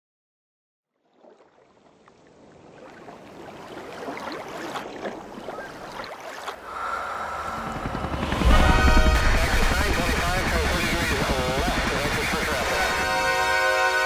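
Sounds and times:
sea water lapping on beach: 0:00.9 - 0:07.4
steady high tone: 0:06.6 - 0:14.0.

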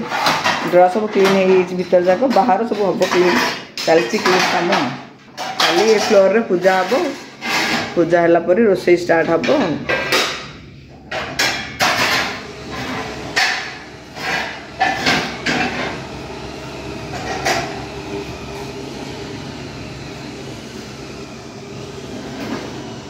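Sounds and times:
steady low hum: 0:05.0 - 0:23.0.

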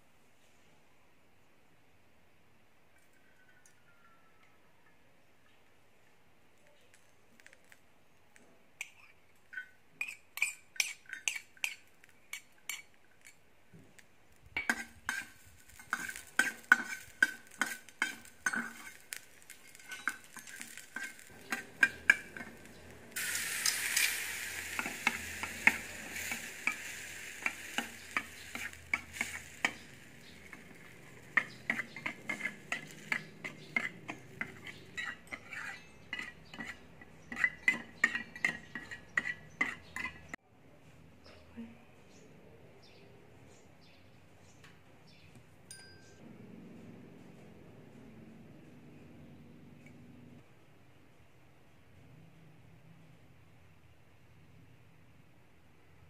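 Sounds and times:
metal utensil scraping frying pan: 0:08.8 - 0:13.3, 0:14.6 - 0:40.4
sauce sizzling in hot pan: 0:14.6 - 0:35.7.

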